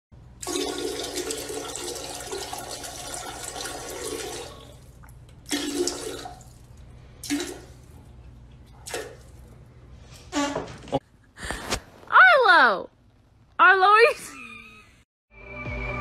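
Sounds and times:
toilet flushing: 0.4 - 8.2.

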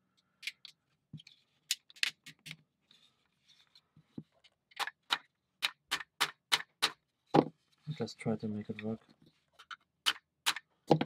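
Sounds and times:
wooden parts clicking and tapping: 0.1 - 2.7, 8.6 - 11.0.

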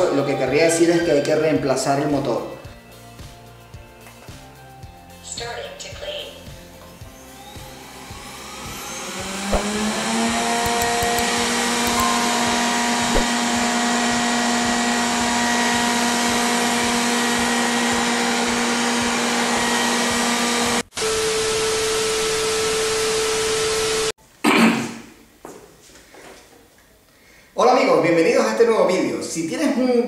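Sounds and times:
robot vacuum fan whining: 6.8 - 24.1.

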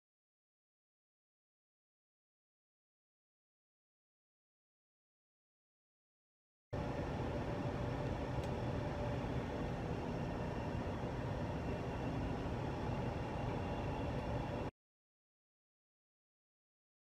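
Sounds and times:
background rumble and hiss: 6.8 - 14.7.

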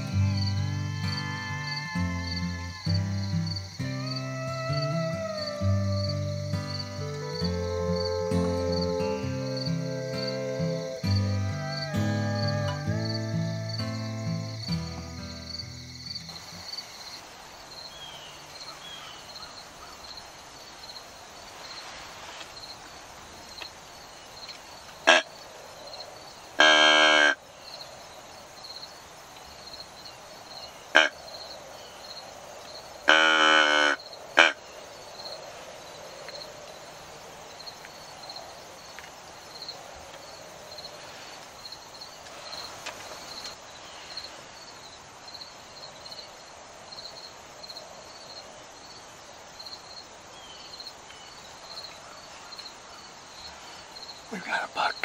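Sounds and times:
deer call tube: 0.0 - 15.0, 25.1 - 25.3, 26.6 - 27.4, 31.0 - 31.2, 33.1 - 34.6
insects chirping: 0.0 - 55.0.

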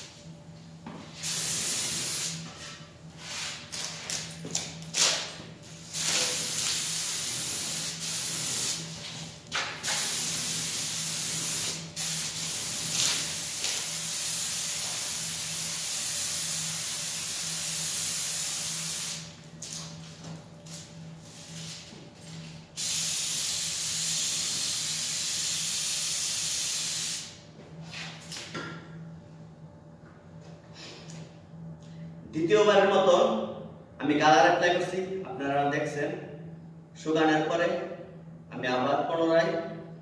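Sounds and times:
spray gun hissing: 1.2 - 2.4, 5.9 - 8.9, 9.8 - 19.3, 22.8 - 27.3.

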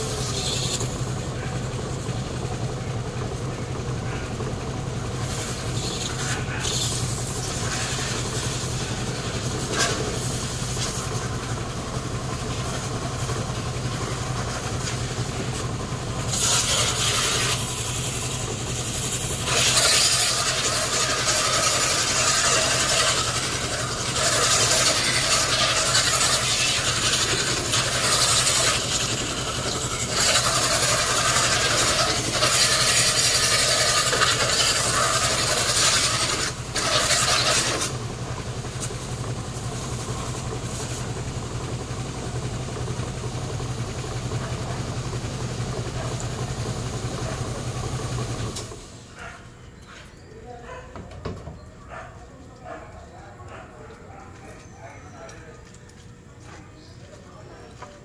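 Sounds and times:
pressure washer jet hissing: 0.0 - 1.2, 5.0 - 41.2
low machine hum: 0.0 - 58.0.

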